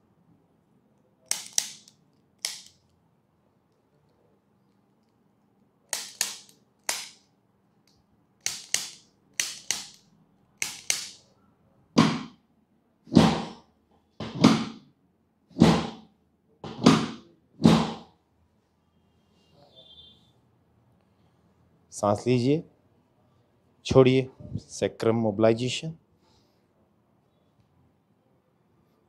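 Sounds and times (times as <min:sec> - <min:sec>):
adjusting instrument clicks: 0:01.3 - 0:03.0, 0:05.9 - 0:07.2.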